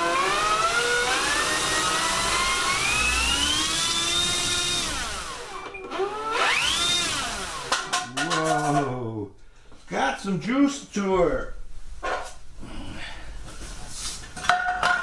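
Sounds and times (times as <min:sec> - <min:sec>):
electric motor and propeller whining: 0:00.0 - 0:07.8.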